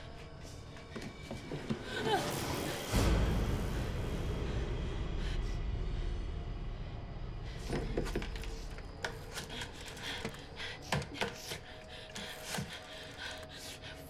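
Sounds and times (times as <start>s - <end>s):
low rumble: 2.4s - 10.6s.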